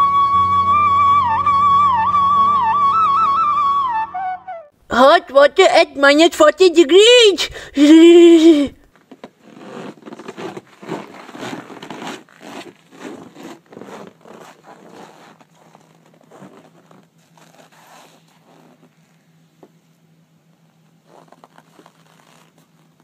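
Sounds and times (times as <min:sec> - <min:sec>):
clothing rustle: 0:08.9 - 0:19.4, 0:20.9 - 0:23.0
footsteps crunching in snow: 0:09.4 - 0:19.0.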